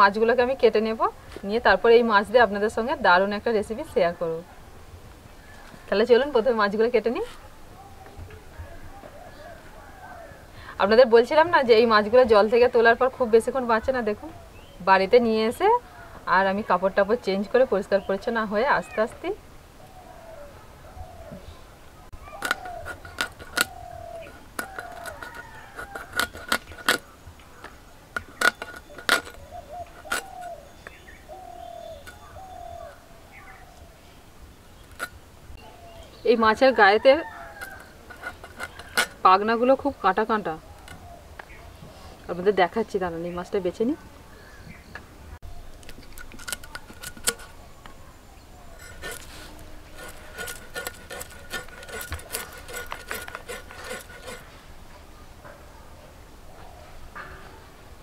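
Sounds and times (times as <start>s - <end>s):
bird calling: 17.9s - 42.6s
fish scales scraped off blade: 22.3s - 27.1s, 28.2s - 30.6s, 37.3s - 39.2s, 46.0s - 47.6s, 48.8s - 54.5s.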